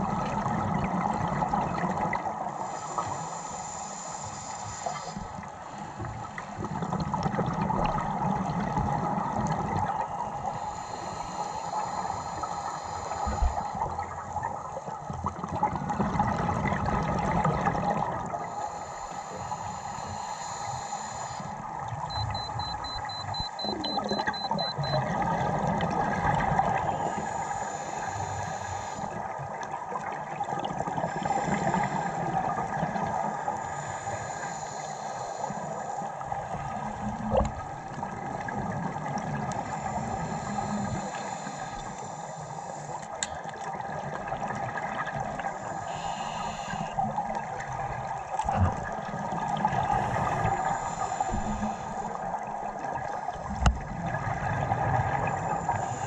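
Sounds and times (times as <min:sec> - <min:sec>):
regulator breathing and bubbles: 0:00.0 - 0:56.0.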